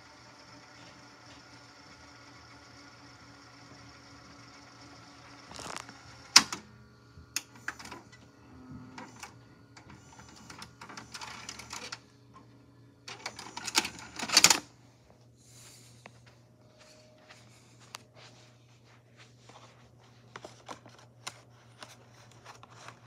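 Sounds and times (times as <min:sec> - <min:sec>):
faint hum: 0:00.0 - 0:23.0
tape deck mechanism clunking: 0:05.5 - 0:06.7, 0:07.3 - 0:08.3, 0:08.9 - 0:14.7.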